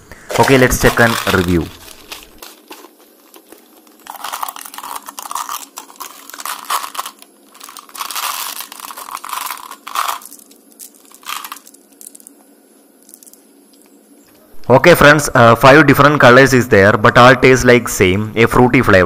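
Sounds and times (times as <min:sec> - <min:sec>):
crunching and crinkling: 0:00.1 - 0:14.0.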